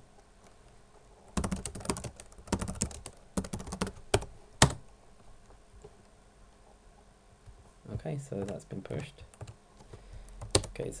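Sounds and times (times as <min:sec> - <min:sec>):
computer keyboard typing: 0:01.3 - 0:04.8, 0:08.4 - 0:10.8.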